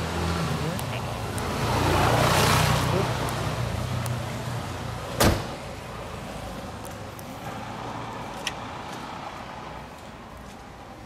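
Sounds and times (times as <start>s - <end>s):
car bonnet shutting thud: 5.2s - 5.6s.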